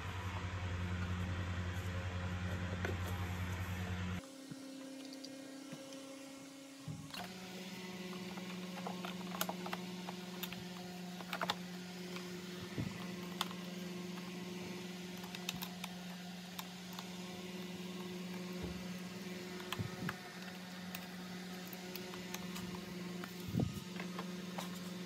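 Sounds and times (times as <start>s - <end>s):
steady low hum: 0.0s - 25.0s
plastic parts clicking and tapping: 8.1s - 13.6s, 15.1s - 17.2s, 19.5s - 24.8s.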